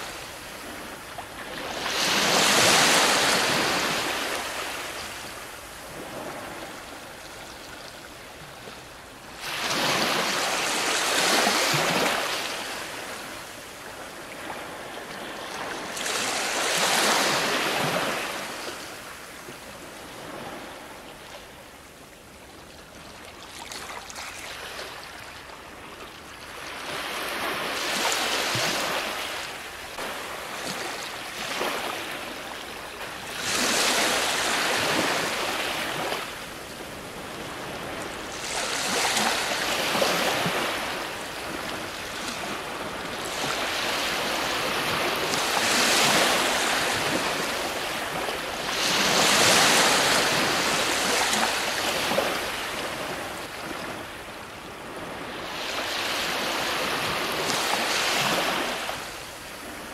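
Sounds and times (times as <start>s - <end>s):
ocean surf breaking: 37.5s - 53.1s.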